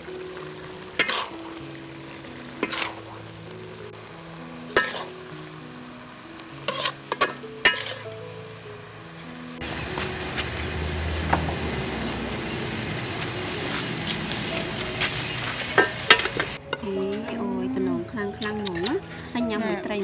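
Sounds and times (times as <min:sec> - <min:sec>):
soft background music: 0:00.0 - 0:20.0
metal spatula scraping a wok: 0:01.0 - 0:01.4, 0:02.6 - 0:03.0, 0:04.8 - 0:05.2, 0:06.6 - 0:08.2, 0:13.5 - 0:16.6.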